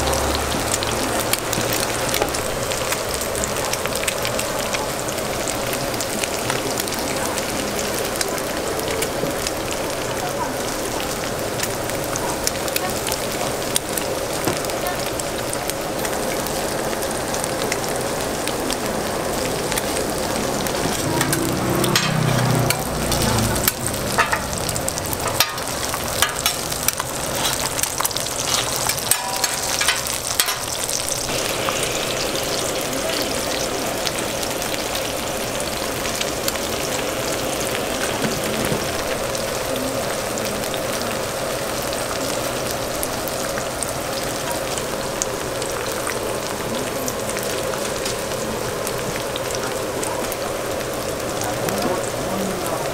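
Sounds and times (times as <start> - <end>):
food sizzling on a griddle: 0.0 - 52.9
cooking utensils clicking: 20.6 - 31.9.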